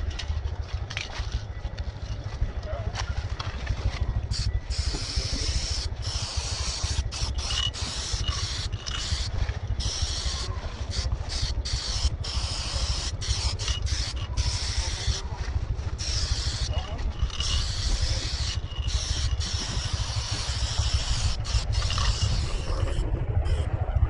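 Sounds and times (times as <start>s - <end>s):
low rumble: 0.0s - 24.0s
spray paint can hissing: 4.3s - 15.3s, 15.9s - 23.7s.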